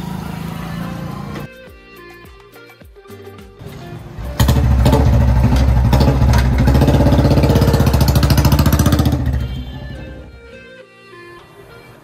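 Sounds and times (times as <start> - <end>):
motorcycle engine running: 3.6 - 10.4.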